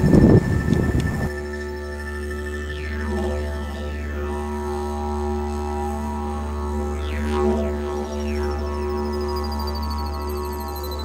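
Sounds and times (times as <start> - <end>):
thin high tones: 0.0 - 4.2
didgeridoo drone: 0.0 - 11.0.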